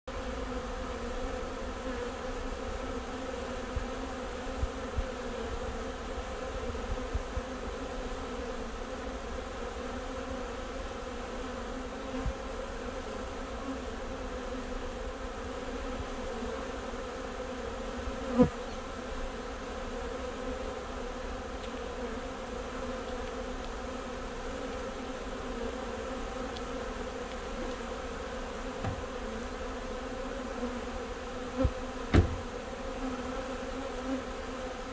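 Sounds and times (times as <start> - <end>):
honeybee swarm buzzing: 0.1 - 34.9
loud bump: 32.1 - 32.6.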